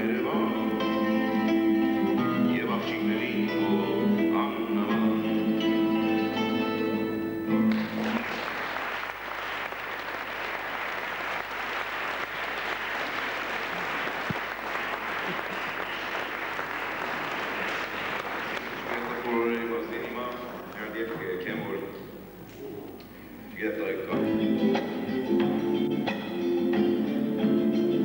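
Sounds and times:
acoustic guitar music: 0:00.0 - 0:08.4, 0:24.0 - 0:28.0
audience applauding: 0:07.7 - 0:21.3.

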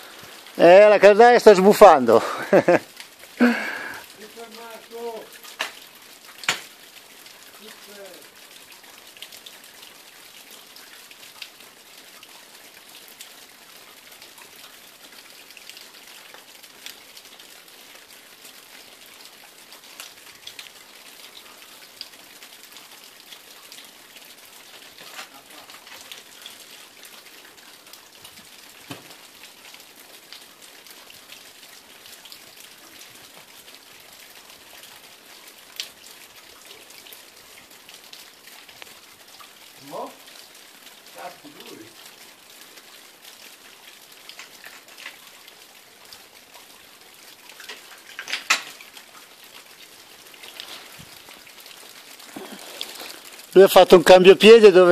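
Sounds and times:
water dripping and trickling: 0:00.0 - 0:54.9.

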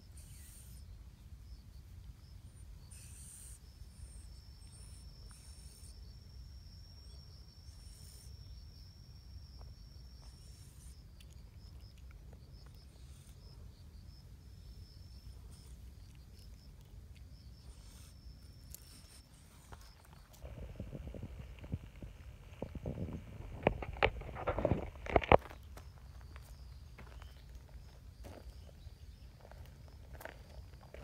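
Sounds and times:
high insect buzz: 0:00.0 - 0:01.0, 0:02.8 - 0:11.1
insects chirping: 0:00.0 - 0:31.0
low rumble: 0:20.3 - 0:25.5.

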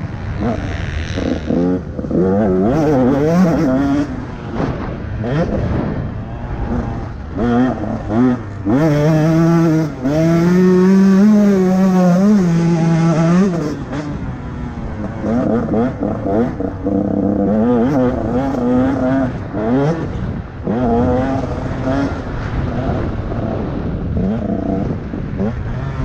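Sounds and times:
motocross bike engine revving: 0:00.0 - 0:26.0.

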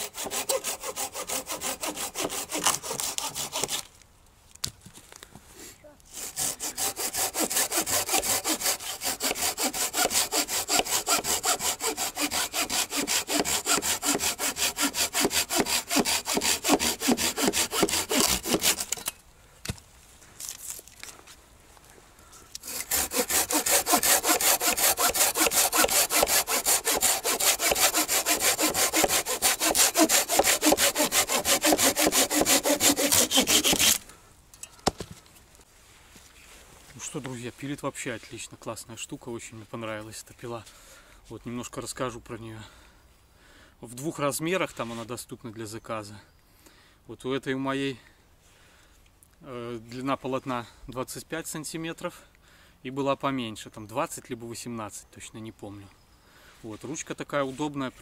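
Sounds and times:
hand saw cutting branch: 0:00.0 - 0:03.9, 0:06.1 - 0:19.1, 0:22.6 - 0:34.1.

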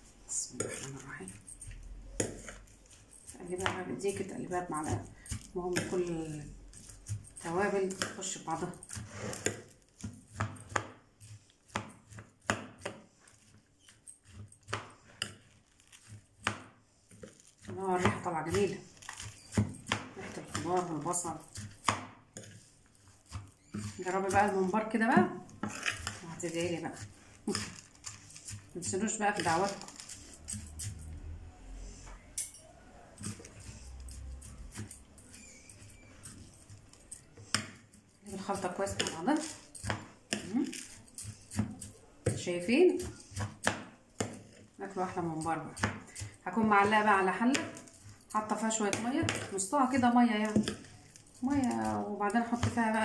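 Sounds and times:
rice mix rustling: 0:00.0 - 0:53.0
spoon stirring food on platter: 0:00.0 - 0:53.0
metal spoon clinking on plate: 0:32.4 - 0:37.3.

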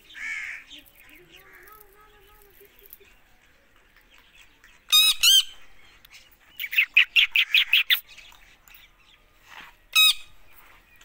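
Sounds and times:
parakeet screeching and chattering: 0:04.9 - 0:05.6, 0:06.6 - 0:08.1.

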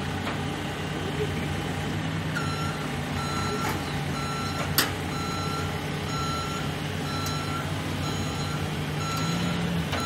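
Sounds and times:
running engine: 0:00.0 - 0:10.0
reversing alarm beeping: 0:02.4 - 0:10.0.

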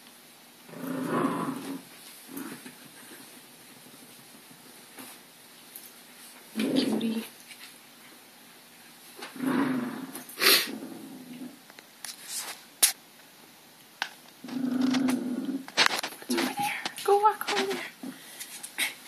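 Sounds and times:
dog growling: 0:00.7 - 0:02.7, 0:06.5 - 0:07.3, 0:09.2 - 0:11.6, 0:14.4 - 0:16.6.

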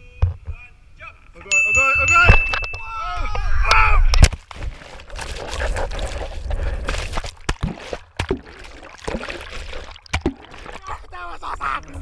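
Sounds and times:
underwater rushing and gurgling: 0:04.6 - 0:11.4.

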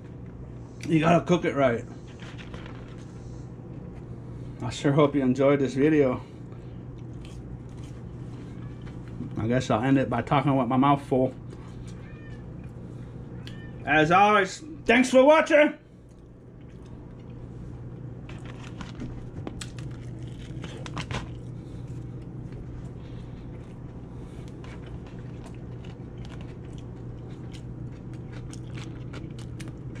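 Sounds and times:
low hum: 0:00.0 - 0:30.0
person chewing food: 0:06.4 - 0:09.4, 0:16.0 - 0:30.0.

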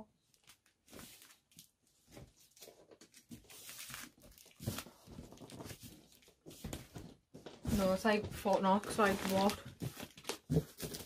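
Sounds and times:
packaging tearing and crinkling: 0:02.5 - 0:06.3, 0:08.9 - 0:11.0.

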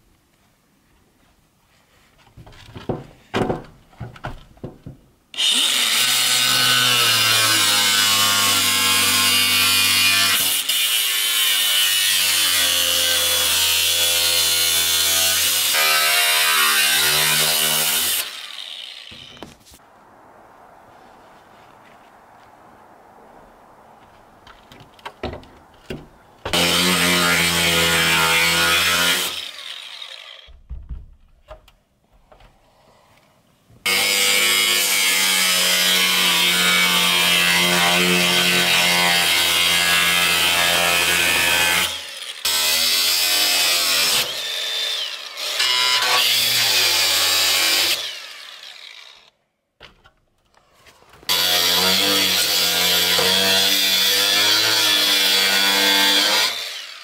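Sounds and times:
angle grinder cutting steel: 0:05.4 - 0:19.5, 0:26.5 - 0:30.5, 0:33.9 - 0:49.3, 0:51.3 - 0:57.0.

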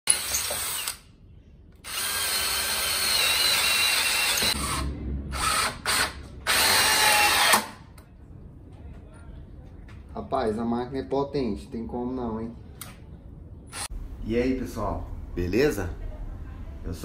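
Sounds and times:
cordless drill boring into wood: 0:00.1 - 0:01.0, 0:01.8 - 0:04.6, 0:05.9 - 0:07.7.

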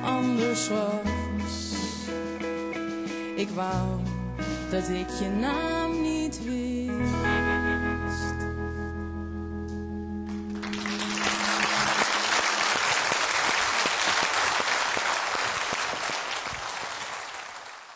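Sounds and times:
band chord on guitars and keyboard: 0:06.9 - 0:12.4
audience applauding: 0:10.3 - 0:17.9.

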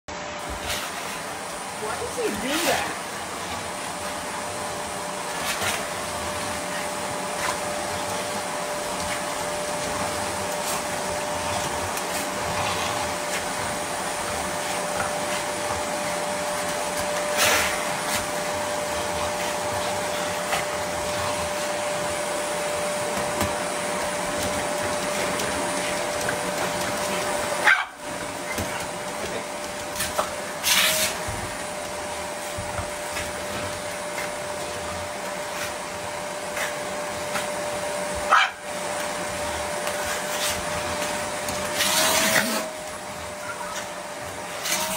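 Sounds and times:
dog barking: 0:27.6 - 0:28.0, 0:38.3 - 0:38.6.

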